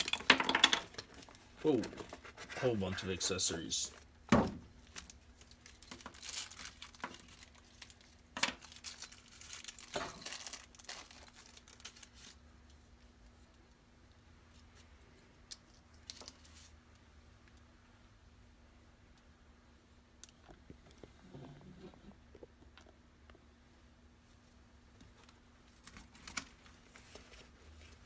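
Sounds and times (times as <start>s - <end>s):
plastic bags crinkling: 4.8s - 12.4s.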